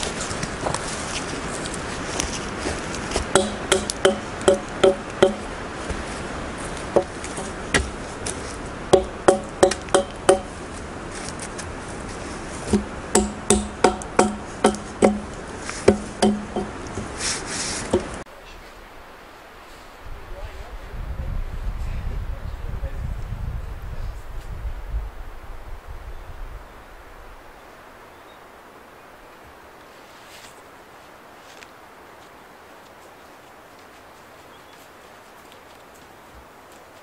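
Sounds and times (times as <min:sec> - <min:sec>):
steady wind: 0:00.0 - 0:37.0
axe chopping log: 0:03.2 - 0:05.5, 0:07.0 - 0:08.0, 0:08.9 - 0:10.5, 0:12.7 - 0:17.2, 0:17.9 - 0:18.2.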